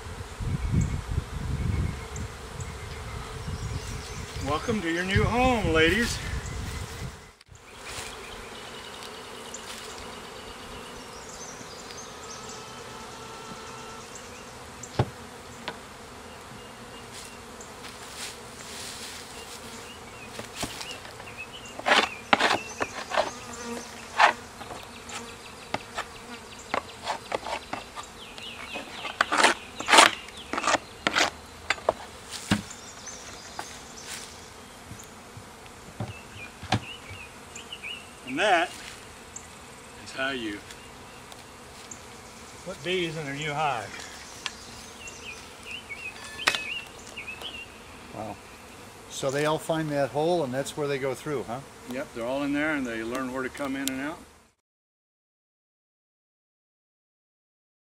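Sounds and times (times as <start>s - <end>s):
bees buzzing: 0.0s - 54.6s
wooden hive parts knocking: 14.9s - 15.8s, 20.3s - 26.1s, 26.7s - 32.8s, 34.9s - 37.2s.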